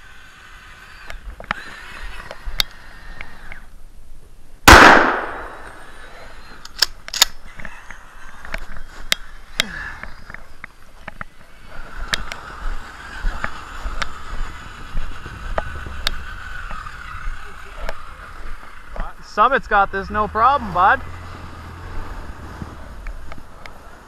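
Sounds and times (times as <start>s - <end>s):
shotgun blast: 4.6s - 5.9s
sharp clicks: 6.6s - 11.3s, 12.0s - 12.4s.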